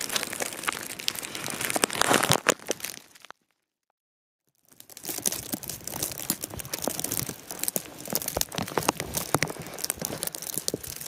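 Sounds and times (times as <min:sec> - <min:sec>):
footsteps crunching in snow: 0:00.0 - 0:03.3.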